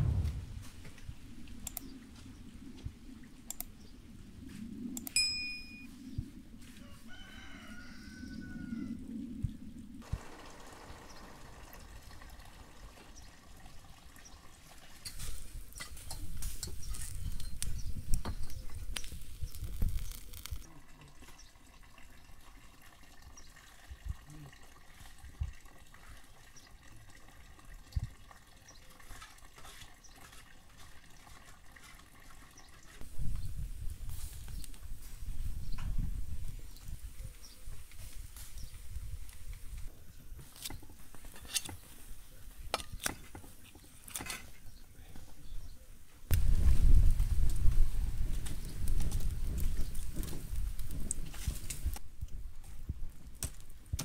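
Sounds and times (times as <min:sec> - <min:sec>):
rustling noise: 0:00.0 - 0:01.2, 0:33.0 - 0:42.2, 0:46.4 - 0:53.0
rooster crowing: 0:06.7 - 0:09.1.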